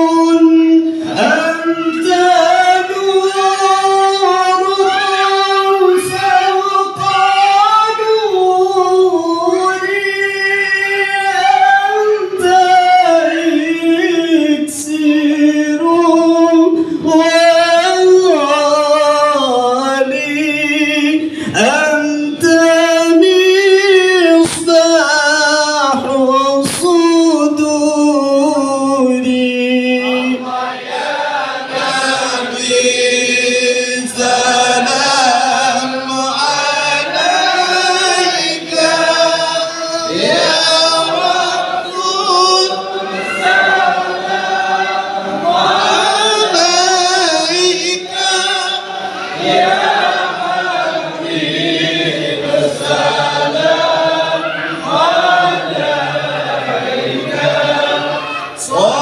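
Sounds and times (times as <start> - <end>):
congregation singing a chant: 0.0 - 59.0.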